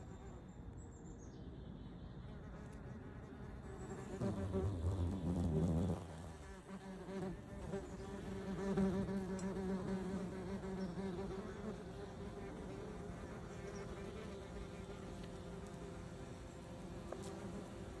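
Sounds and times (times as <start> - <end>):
wasp buzzing: 3.8 - 18.0.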